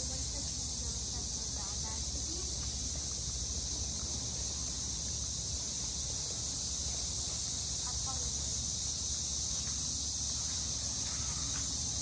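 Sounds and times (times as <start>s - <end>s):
crickets chirping: 0.0s - 12.0s.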